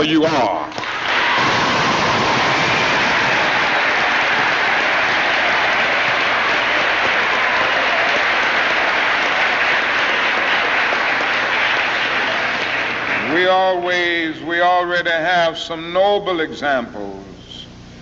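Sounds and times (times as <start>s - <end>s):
large audience applauding: 0.7s - 14.2s.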